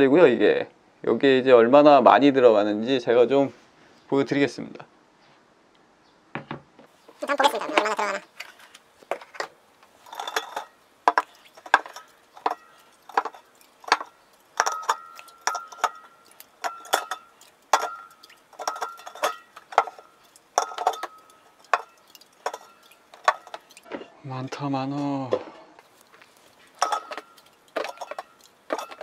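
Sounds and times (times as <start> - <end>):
aluminium cans clinking: 7.2 - 24.6, 25.8 - 29.0.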